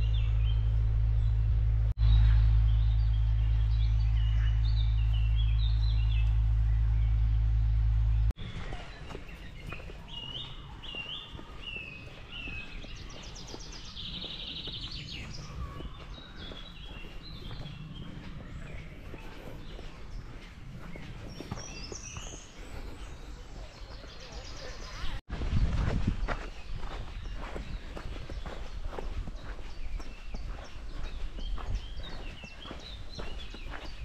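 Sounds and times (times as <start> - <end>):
low rumble: 0.0 - 9.3, 13.9 - 21.9
songbirds chirping: 0.0 - 34.0.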